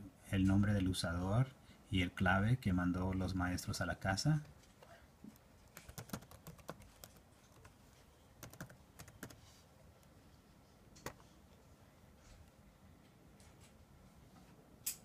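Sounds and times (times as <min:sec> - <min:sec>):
faint keyboard typing: 0:04.4 - 0:10.2, 0:10.9 - 0:11.4.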